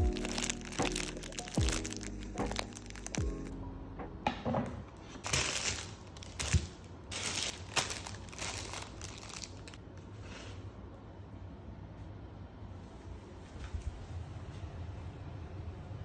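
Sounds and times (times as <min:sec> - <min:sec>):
plastic packaging crinkling: 0:00.0 - 0:03.5, 0:05.0 - 0:09.8.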